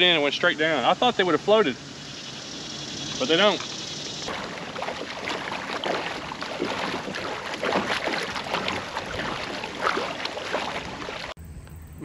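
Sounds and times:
water splashing along kayak hull: 2.2s - 11.4s.

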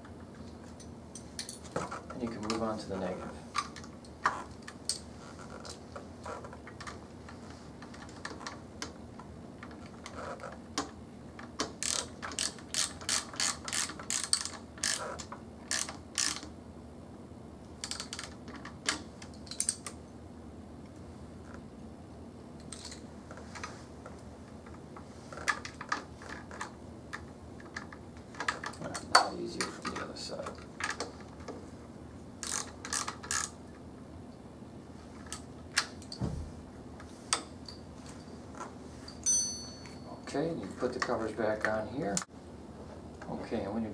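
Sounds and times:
ratchet wrench clicking: 11.8s - 16.5s, 32.4s - 33.5s
tool handling clicks: 17.8s - 20.0s, 22.6s - 23.0s.

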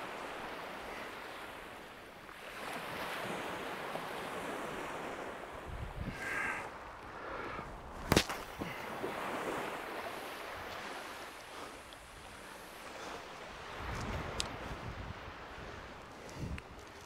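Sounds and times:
waves washing on beach: 0.0s - 17.0s
wind on microphone: 5.6s - 8.7s, 13.6s - 17.0s.

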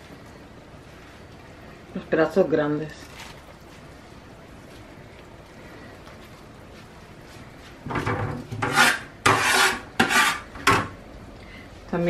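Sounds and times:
pan and utensils scraping and knocking: 7.8s - 11.0s.

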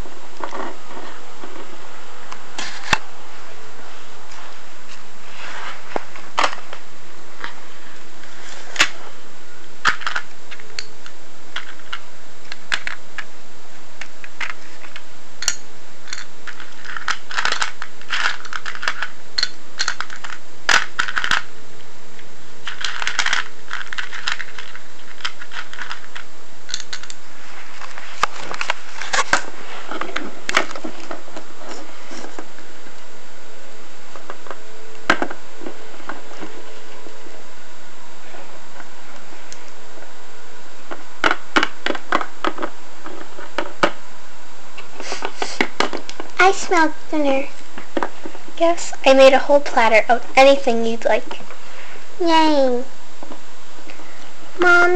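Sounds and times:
plastic toy pieces clattering: 9.8s - 10.9s, 14.4s - 21.5s, 22.6s - 27.2s.

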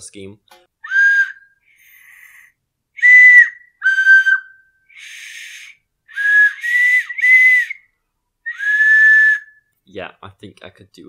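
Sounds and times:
man speaking: 0.0s - 0.5s, 9.9s - 11.0s
plastic flute toots: 0.8s - 7.9s, 8.5s - 9.7s.

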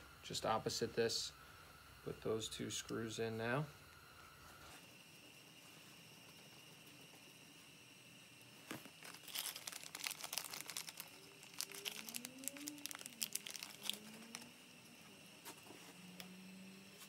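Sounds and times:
plastic bag crinkling: 8.8s - 14.6s.

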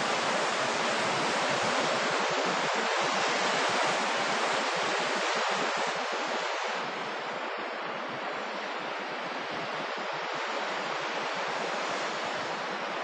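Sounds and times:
sea surf breaking on shore: 0.0s - 13.0s.

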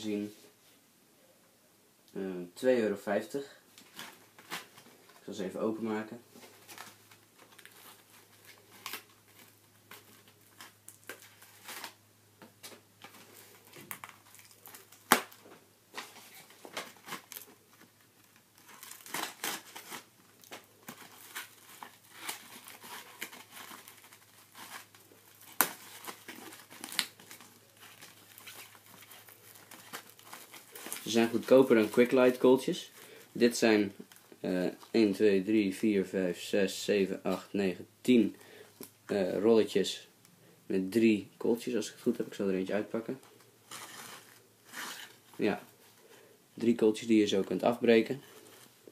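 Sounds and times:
wrapping crinkling and tearing: 3.7s - 5.4s, 6.2s - 12.0s, 12.6s - 35.2s, 42.0s - 48.9s
knife slitting wrapping: 18.6s - 32.4s.

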